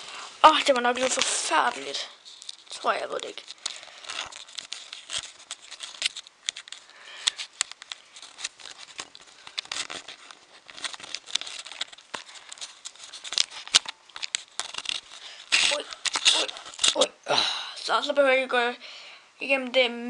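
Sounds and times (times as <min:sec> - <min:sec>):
camera handling crackles and clicks: 0:03.5 - 0:17.0.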